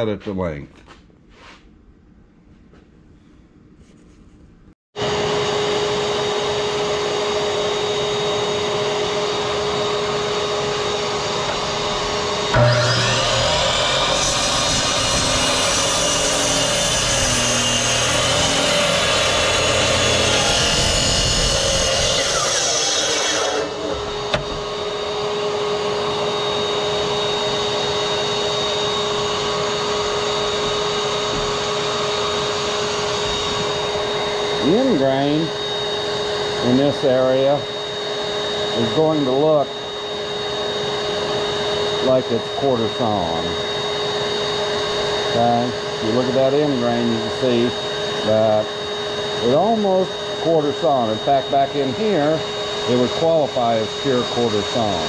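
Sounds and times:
miter saw motor drone: 5.0 - 55.0
saw blade cutting wood: 9.6 - 24.8.

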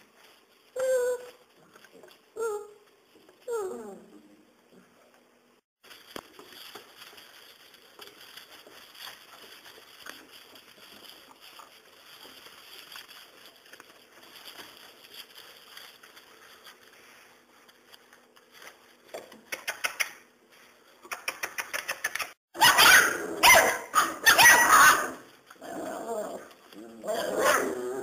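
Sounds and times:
rustling in straw: 5.8 - 19.1
puppy yaps: 22.6 - 25.2
puppies growling: 25.6 - 28.0.

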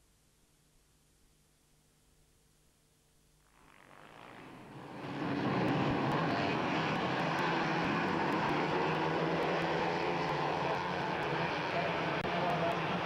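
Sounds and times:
mini bike engines racing: 3.8 - 13.0.

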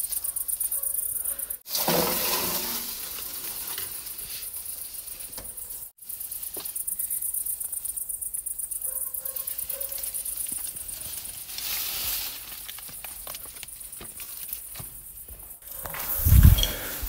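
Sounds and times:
crickets chirping: 0.0 - 17.0
loud scraping: 1.7 - 3.5.

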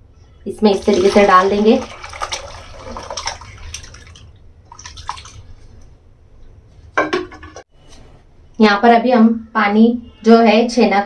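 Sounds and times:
whey draining through cloth: 0.5 - 6.0
liquid splashing and pouring: 0.7 - 5.9.

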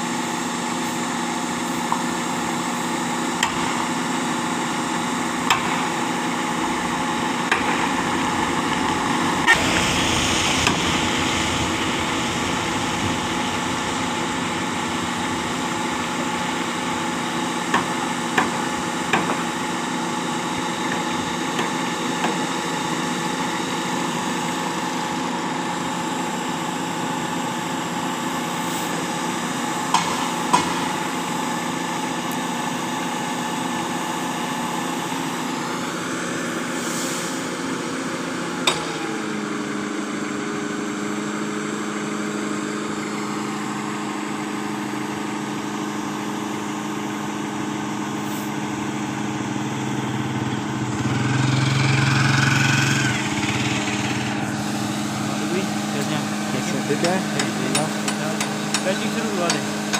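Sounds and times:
diesel engine running: 0.0 - 59.9
hiss: 9.5 - 17.2, 36.7 - 37.4.

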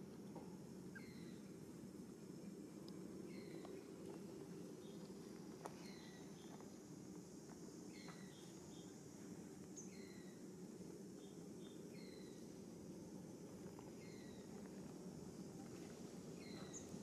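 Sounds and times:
low steady background noise: 0.0 - 17.0
bird chirping: 0.9 - 1.5, 3.2 - 3.8, 5.8 - 6.6, 7.9 - 9.0, 9.8 - 10.4, 16.4 - 17.0.

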